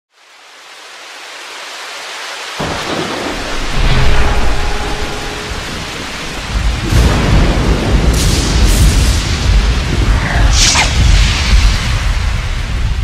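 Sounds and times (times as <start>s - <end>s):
rain hissing: 0.1s - 13.0s
thunder rumbling: 2.6s - 13.0s.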